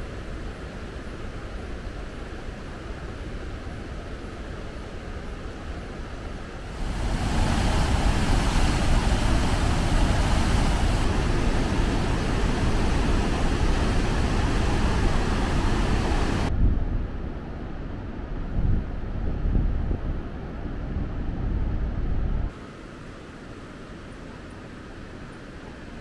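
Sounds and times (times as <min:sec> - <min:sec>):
rapids rushing over rocks: 0:06.7 - 0:16.5.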